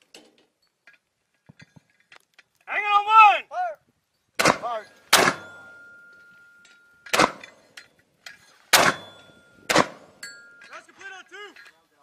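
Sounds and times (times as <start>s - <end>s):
mortar blasts: 4.4s - 5.6s
thin ringing tone: 5.4s - 7.1s, 9.0s - 11.0s.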